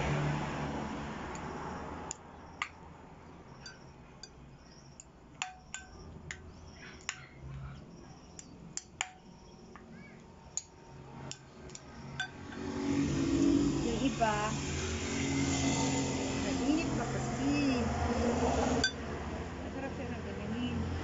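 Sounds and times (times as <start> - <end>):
utensils clinking against glass bowl: 3.6 - 4.4, 12.2 - 12.7, 18.8 - 19.0.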